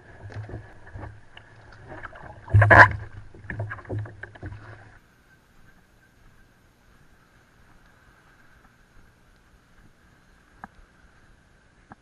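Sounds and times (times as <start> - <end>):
water sloshing against kayak hull: 0.0 - 5.0
splash and thump: 0.2 - 4.8.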